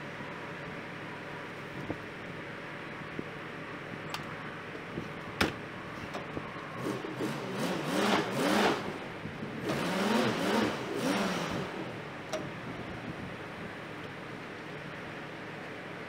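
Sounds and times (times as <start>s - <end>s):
truck door shutting: 5.3s - 6.4s
pickup engine revving: 6.7s - 13.0s.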